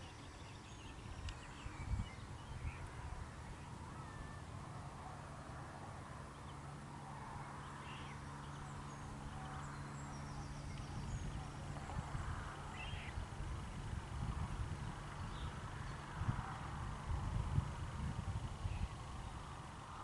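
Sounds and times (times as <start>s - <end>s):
faint bird chirps: 0.0s - 4.5s
wind rumble on microphone: 0.0s - 20.0s.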